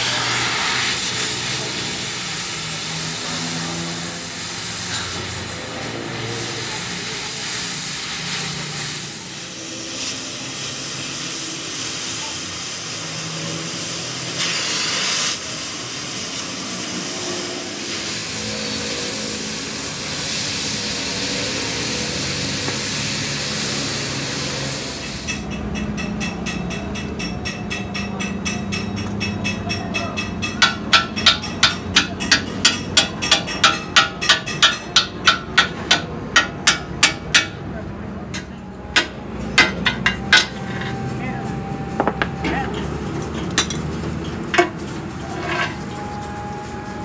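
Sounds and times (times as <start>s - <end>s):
gas cutting torch hissing: 0.0s - 25.5s
hammer blows on metal: 25.0s - 37.7s, 38.4s - 41.0s.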